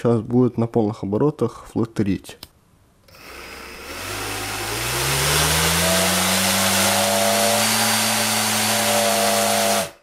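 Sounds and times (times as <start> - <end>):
electric motor whine: 3.1 - 10.0
propeller air rush: 3.8 - 10.0.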